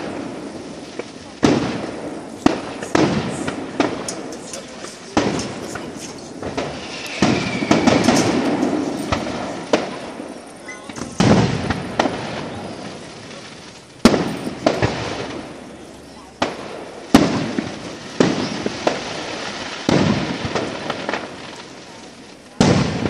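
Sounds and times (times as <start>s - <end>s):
fireworks bursting with sharp bangs: 0.0s - 23.0s
fireworks rumble: 0.0s - 23.0s.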